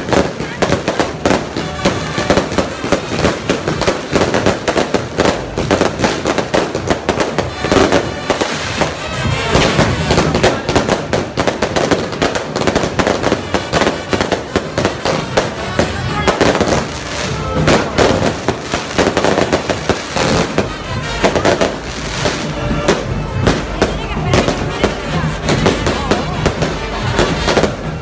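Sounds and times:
band music: 0:00.0 - 0:28.0
firecrackers popping: 0:00.0 - 0:28.0.

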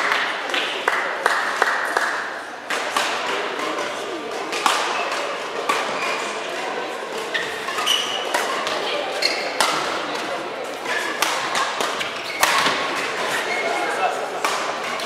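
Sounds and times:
hands clapping: 0:00.0 - 0:05.8
voices in a hall: 0:00.0 - 0:15.0
rackets hitting shuttlecock: 0:02.7 - 0:15.0.

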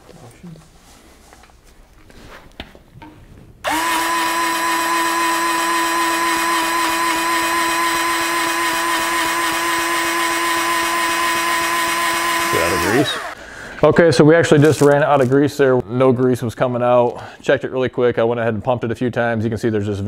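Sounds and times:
electric grease gun motor whining: 0:03.6 - 0:13.4.

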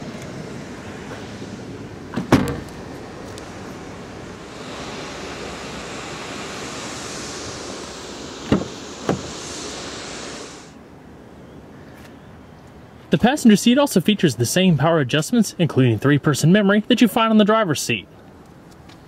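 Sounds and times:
car trunk lid shutting: 0:02.1 - 0:02.8, 0:08.4 - 0:09.4.

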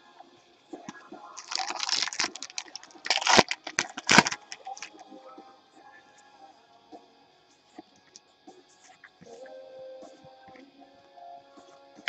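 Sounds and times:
wrapper crackling: 0:01.4 - 0:05.0.

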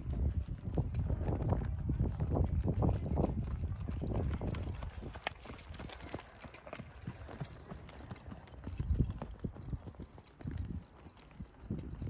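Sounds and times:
horse hoofbeats on soft dirt: 0:00.0 - 0:12.0.

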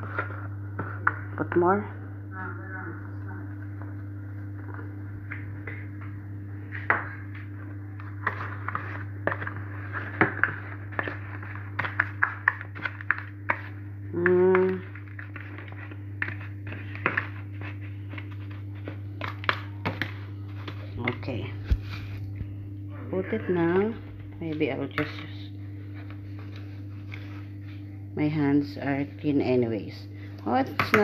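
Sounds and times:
steady low hum: 0:00.0 - 0:31.0
spoon tapping and scraping bowl: 0:08.2 - 0:21.2.

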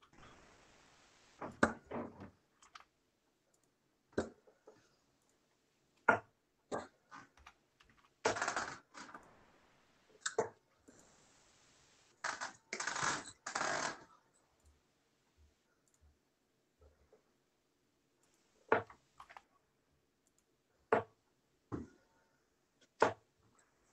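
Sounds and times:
irregular clicks: 0:01.4 - 0:05.4, 0:20.2 - 0:20.5.

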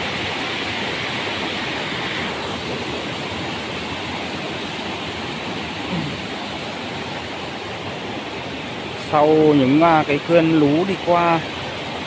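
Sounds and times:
mountain stream rushing over stones: 0:00.0 - 0:12.0.

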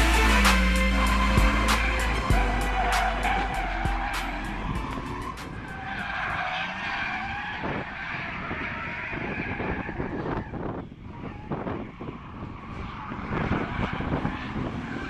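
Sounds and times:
background music with a beat: 0:00.0 - 0:06.2
tyres squealing: 0:00.0 - 0:10.4
car engines revving: 0:00.0 - 0:15.0.

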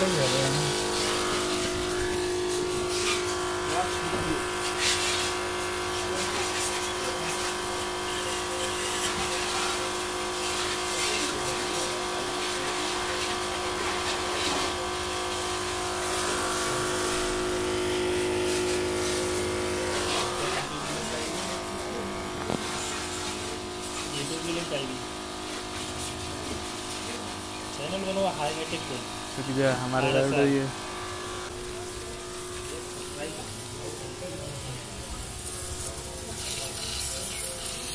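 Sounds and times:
water pump humming: 0:00.0 - 0:37.9
water spraying from hose: 0:00.0 - 0:37.9.

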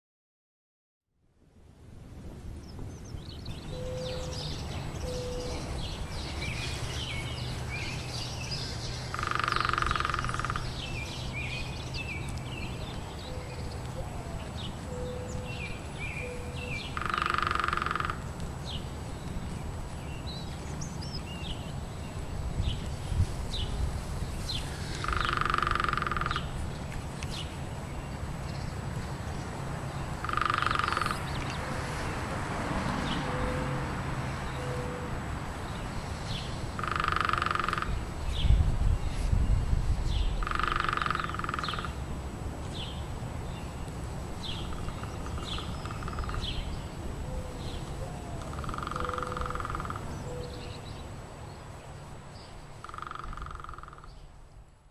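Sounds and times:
low wind rumble: 0:01.2 - 0:54.9
rasping pulsed bird call: 0:03.7 - 0:05.8, 0:08.6 - 0:10.8, 0:48.4 - 0:50.8
buzzy rattling bird call: 0:16.9 - 0:18.2.

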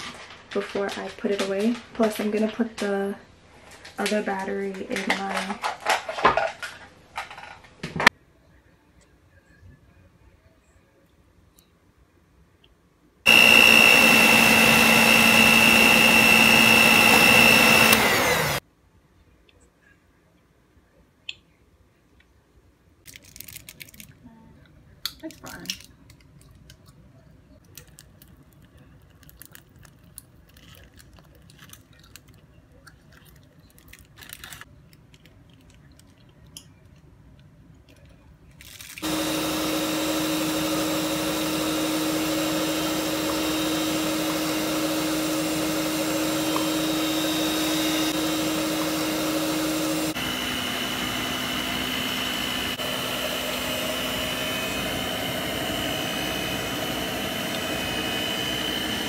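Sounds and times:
motor humming and whining: 0:13.3 - 0:18.6, 0:39.0 - 0:59.0.

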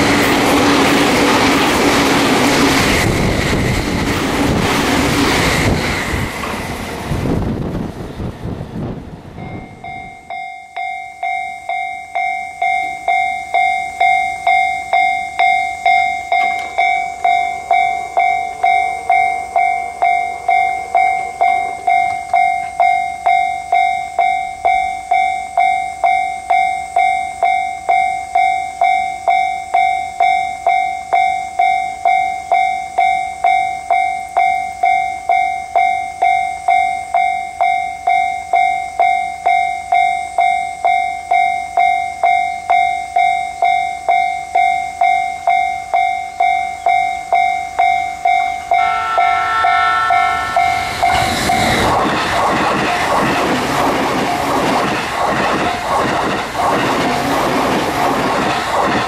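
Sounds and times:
level crossing warning bell: 0:09.3 - 0:56.5.

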